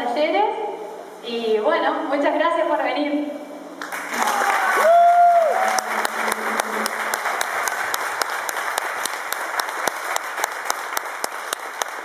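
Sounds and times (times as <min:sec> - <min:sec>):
crowd applauding: 0:03.8 - 0:12.0.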